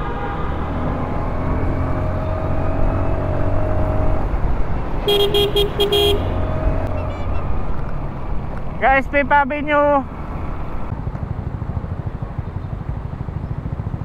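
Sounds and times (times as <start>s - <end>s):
scooter engine drone: 0.0s - 8.3s
horn tooting: 5.0s - 7.6s.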